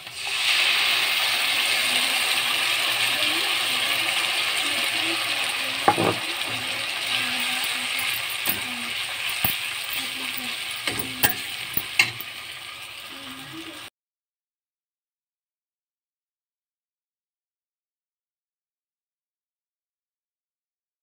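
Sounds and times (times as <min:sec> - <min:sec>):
batter sizzling in hot oil: 0:00.0 - 0:13.9.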